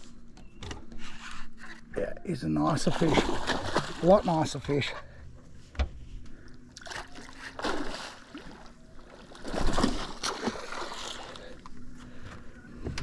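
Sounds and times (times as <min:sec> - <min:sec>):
fish splashing in water: 0:02.8 - 0:04.3, 0:06.8 - 0:11.5.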